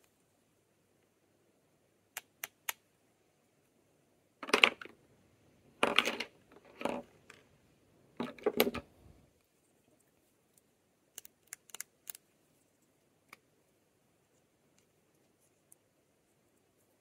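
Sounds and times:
small packaging clicks: 0:11.1 - 0:12.3.

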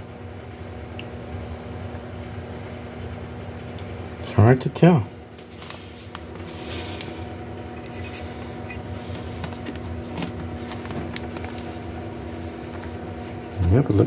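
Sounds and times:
low electrical hum: 0:00.0 - 0:14.0
paper pages rustling: 0:05.4 - 0:06.6.

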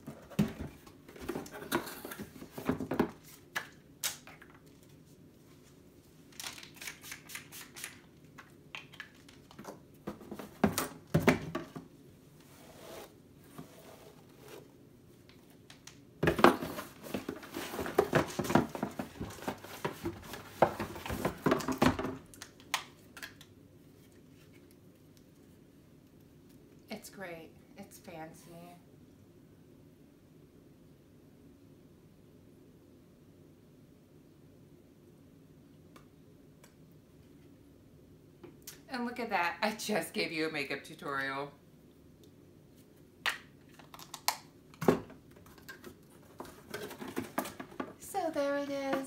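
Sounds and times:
rustling and tapping of items: 0:00.0 - 0:04.9, 0:08.8 - 0:11.9, 0:15.3 - 0:23.4, 0:43.8 - 0:49.0.

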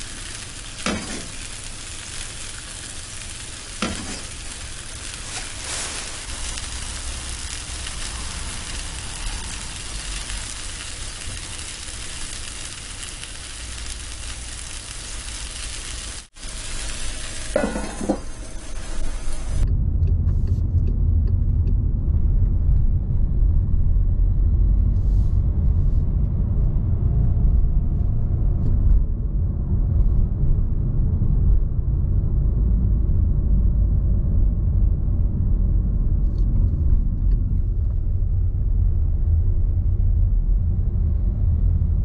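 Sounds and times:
car engine and road noise: 0:19.1 - 0:31.6.

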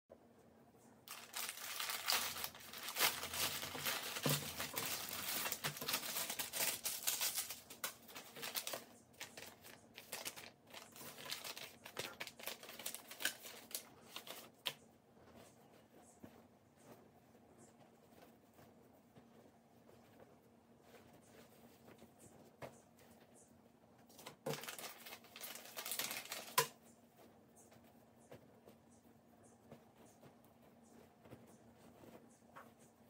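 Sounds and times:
plastic packaging crinkling: 0:01.1 - 0:14.8, 0:24.2 - 0:26.8.

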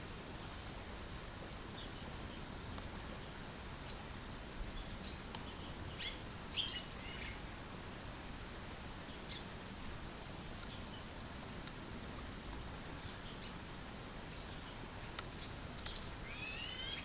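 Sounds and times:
low background noise: 0:00.0 - 0:17.0
swallow chirping and twittering: 0:04.7 - 0:07.4, 0:09.0 - 0:09.5, 0:14.3 - 0:17.0.

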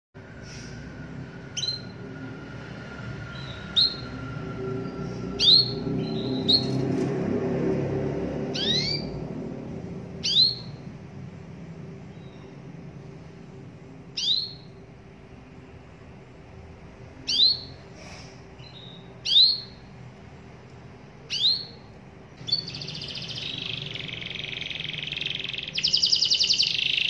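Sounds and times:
canary call notes: 0:21.2 - 0:27.0.

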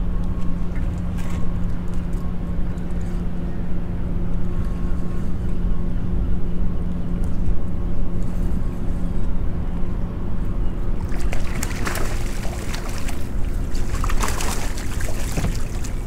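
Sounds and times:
outboard motor running: 0:07.1 - 0:16.0
fish splashing at the surface: 0:11.0 - 0:16.0.

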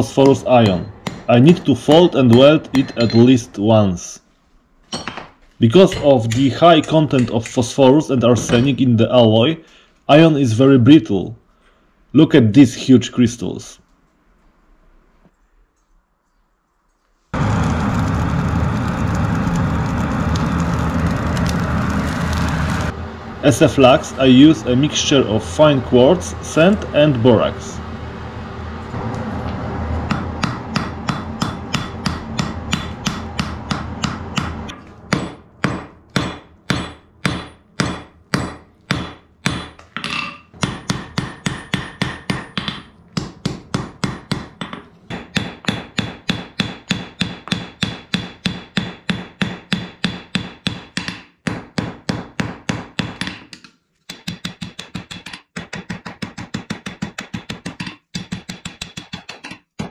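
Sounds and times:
hammer striking iron on anvil: 0:00.0 - 0:03.6, 0:04.9 - 0:07.7, 0:30.1 - 0:59.9.

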